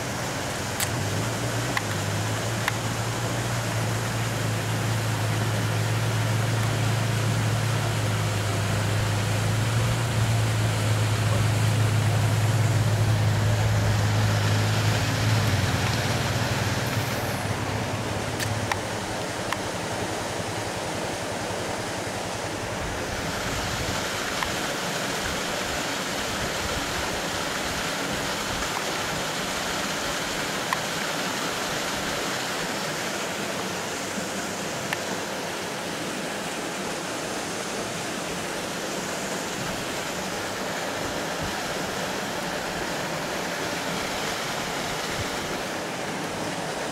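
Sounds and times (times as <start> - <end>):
water rushing through dam: 0.0 - 46.9.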